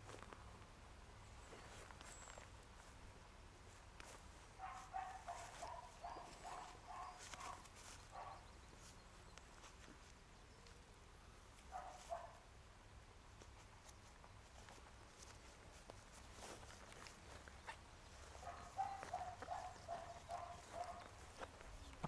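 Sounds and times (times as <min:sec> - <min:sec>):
dog barking: 0:04.6 - 0:08.5, 0:11.7 - 0:12.5, 0:18.4 - 0:21.2.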